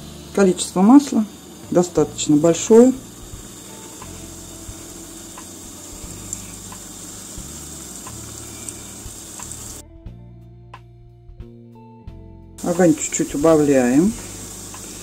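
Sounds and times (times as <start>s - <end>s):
doughnuts sizzling in hot oil: 0.0s - 9.8s, 12.6s - 15.0s
background music: 0.0s - 15.0s
faint ticks: 5.2s - 7.3s, 8.0s - 9.8s, 14.4s - 15.0s.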